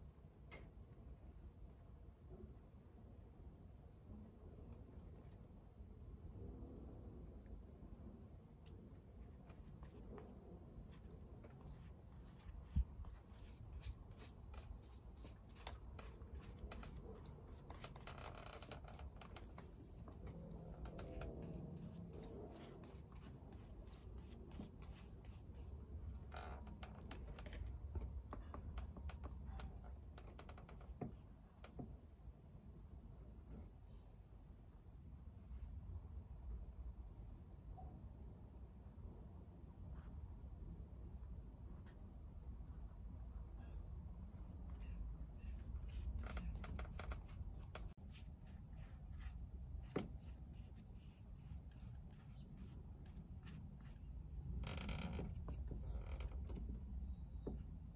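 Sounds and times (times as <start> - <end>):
low steady rumble: 1.2 - 30.4
paintbrush dabbing on paper: 9.2 - 25.8, 44.8 - 54.1.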